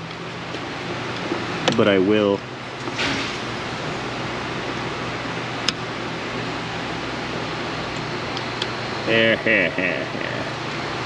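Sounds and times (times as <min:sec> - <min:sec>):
fan-like rushing noise: 0:00.0 - 0:11.0
low hum: 0:00.0 - 0:11.0.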